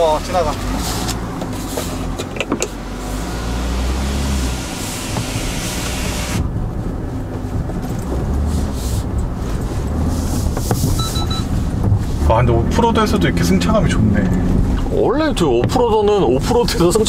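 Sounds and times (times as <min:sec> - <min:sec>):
low engine hum: 0:00.0 - 0:17.0
tyre and suspension noise: 0:00.0 - 0:17.0
hiss: 0:04.4 - 0:06.4.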